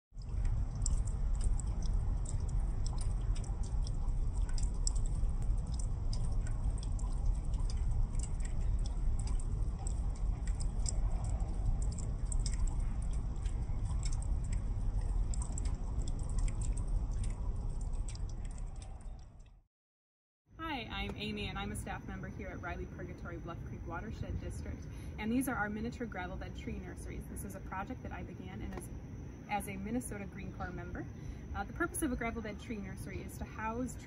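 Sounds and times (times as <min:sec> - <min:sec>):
water dripping onto wet gravel: 0:00.2 - 0:19.3
steady low rumble: 0:00.2 - 0:19.6, 0:20.6 - 0:34.0.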